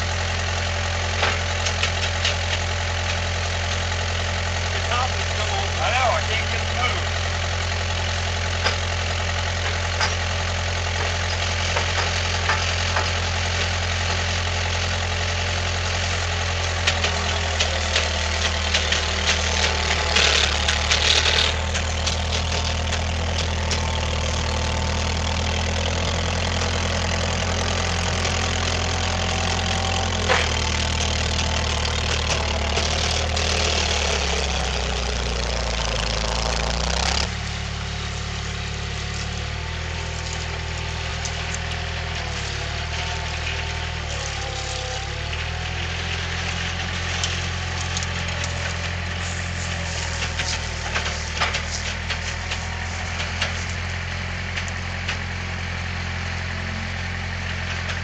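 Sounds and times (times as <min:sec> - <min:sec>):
skid steer engine running: 0:00.0 - 0:58.0
metal rattling and clanking: 0:01.0 - 0:03.9, 0:08.5 - 0:14.4, 0:16.4 - 0:37.3.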